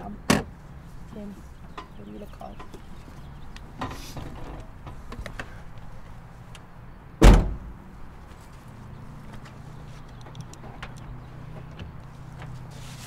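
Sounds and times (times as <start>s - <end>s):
car door shutting: 7.2s - 7.7s.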